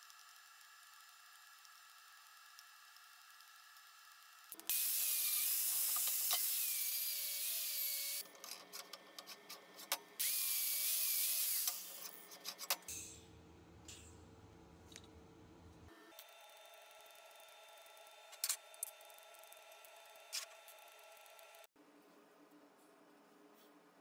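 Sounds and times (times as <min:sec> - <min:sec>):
power tool whining on steel: 0:04.7 - 0:08.2, 0:10.2 - 0:12.2
tool clicking and scraping metal: 0:11.5 - 0:13.1.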